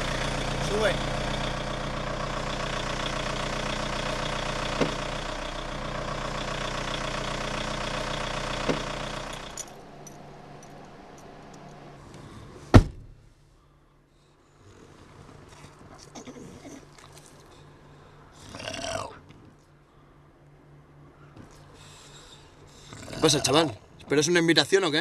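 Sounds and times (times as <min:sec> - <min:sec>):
car engine idling: 0:00.0 - 0:13.6
car door slamming: 0:12.7 - 0:13.3.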